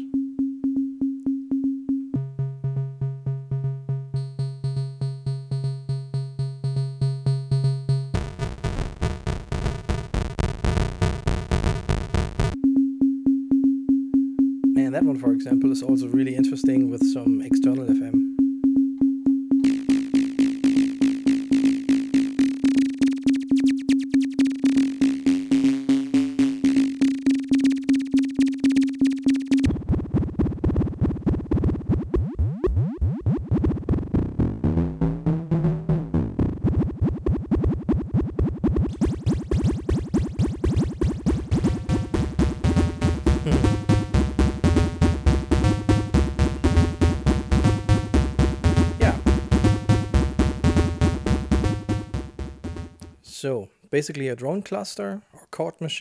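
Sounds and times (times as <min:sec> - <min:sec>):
pulsing synth tones: 0:19.6 - 0:53.2.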